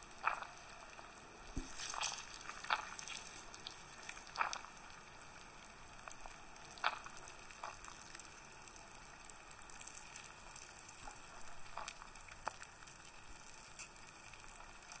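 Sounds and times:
wet crackling of juice sacs: 0:01.5 - 0:05.6.

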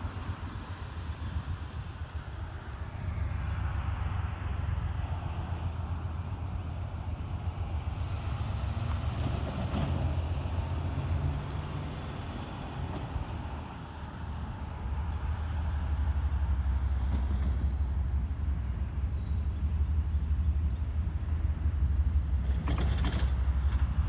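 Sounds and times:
pickup truck driving past: 0:03.6 - 0:17.8.

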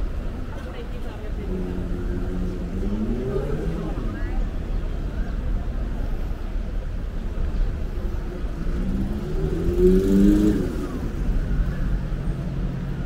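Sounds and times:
traffic rumble: 0:00.0 - 0:13.0
vehicle engine passing: 0:00.8 - 0:05.1, 0:08.1 - 0:13.0.

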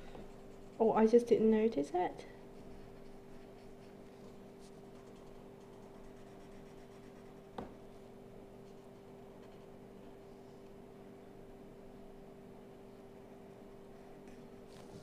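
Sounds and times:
steady low hum: 0:00.0 - 0:15.0
marker scratching on paper: 0:02.7 - 0:07.4.

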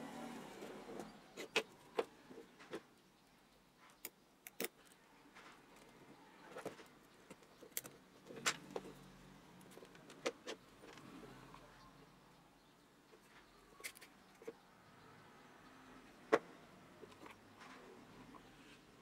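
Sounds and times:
metal and plastic clicks and taps: 0:03.9 - 0:05.0, 0:06.6 - 0:08.9.

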